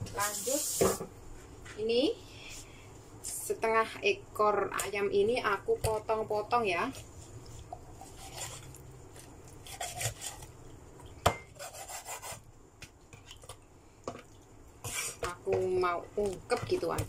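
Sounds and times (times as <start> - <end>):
cleaver scraping through chicken: 8.0 - 8.8, 9.6 - 10.5, 14.8 - 15.3.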